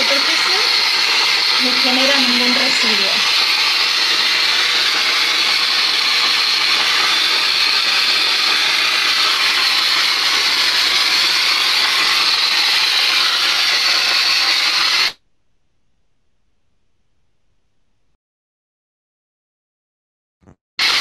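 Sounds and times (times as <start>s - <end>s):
dry-ice blasting gun hissing: 0.0s - 15.2s, 20.8s - 21.0s.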